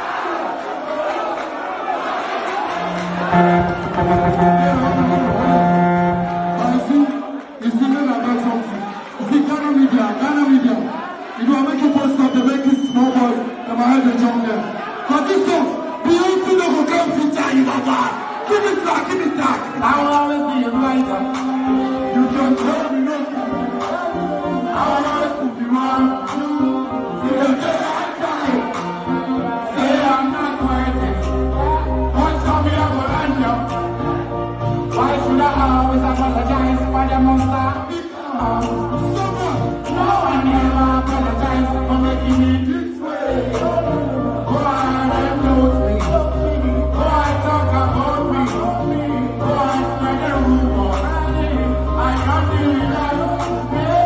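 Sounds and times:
loud dancehall music: 2.1 - 54.0
people singing: 21.3 - 54.0.

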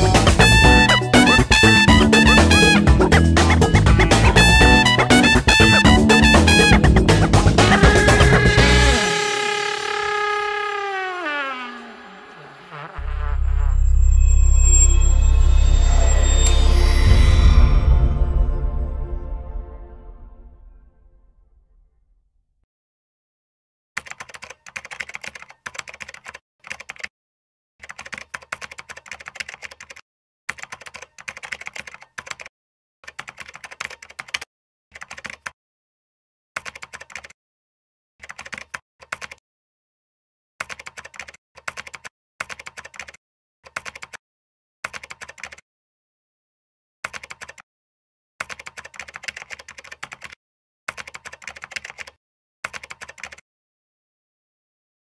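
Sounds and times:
keyboard key clicks: 24.0 - 27.1, 27.8 - 34.4, 35.0 - 35.5, 38.2 - 39.4, 44.9 - 45.6, 47.1 - 47.6, 48.4 - 53.4.

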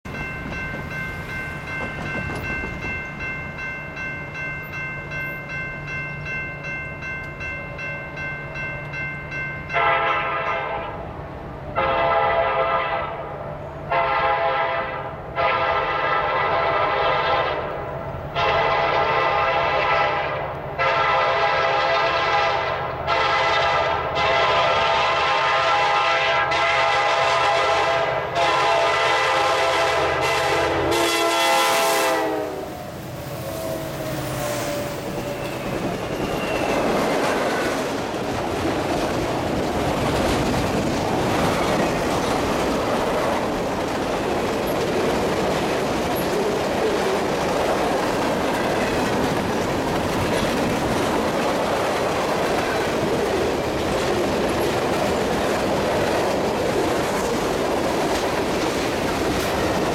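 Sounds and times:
locomotive air horn blasts: 9.7 - 11.0, 11.8 - 17.7, 18.3 - 35.4.

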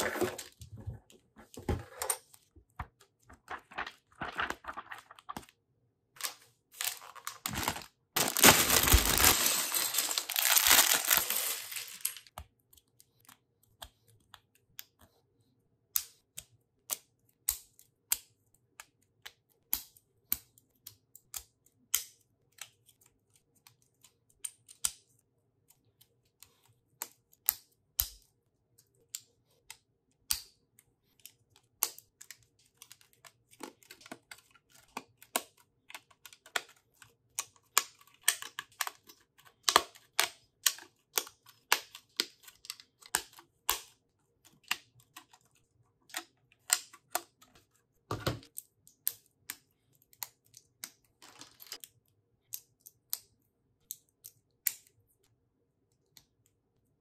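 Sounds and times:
plastic pieces clicking together: 6.2 - 12.3
small plastic pieces rattling: 6.2 - 12.3.

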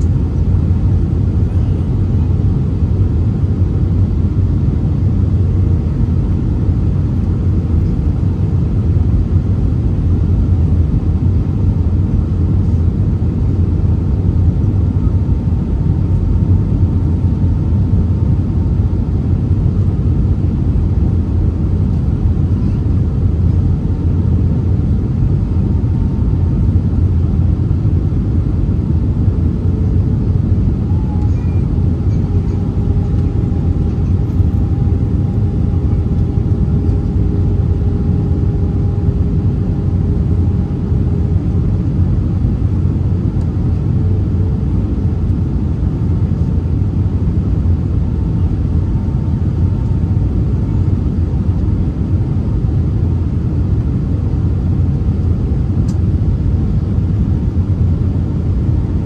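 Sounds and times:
airplane cabin rumble: 0.0 - 59.0
faint steady hum: 0.0 - 59.0.

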